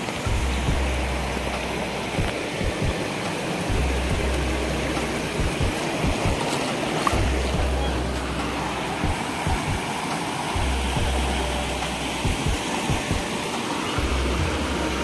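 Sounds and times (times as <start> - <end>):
low background music: 0.0 - 15.0
stream rushing over pebbles: 0.0 - 15.0.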